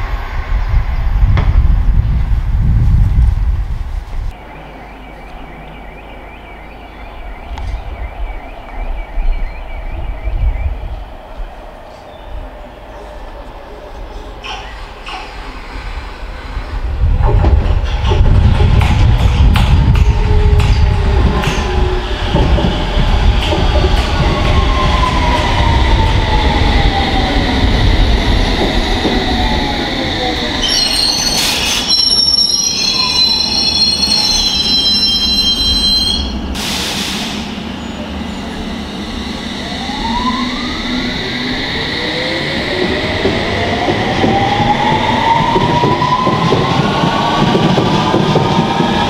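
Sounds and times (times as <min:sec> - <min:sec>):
train braking whine: 0:24.0 - 0:46.8
air hissing: 0:36.5 - 0:37.7.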